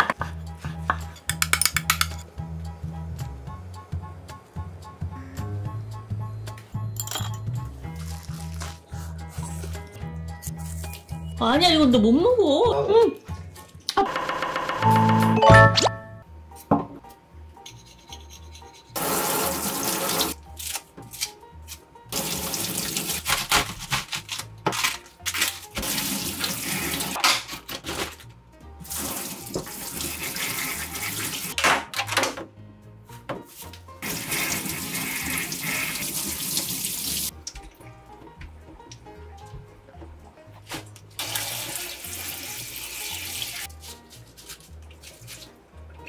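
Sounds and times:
tap water splashing into a sink: 29.0 - 30.2.

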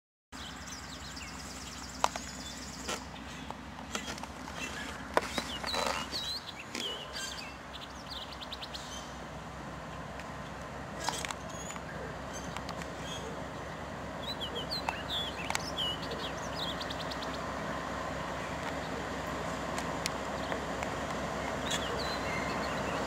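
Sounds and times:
birds chirping and trilling: 0.4 - 23.0
diesel locomotives rumbling: 0.4 - 23.0
sharp clicks: 12.5 - 13.0.

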